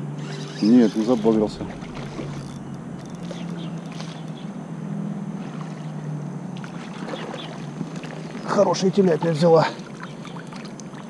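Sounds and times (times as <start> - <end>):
river water rushing: 0.0 - 4.4
low steady hum: 0.0 - 11.0.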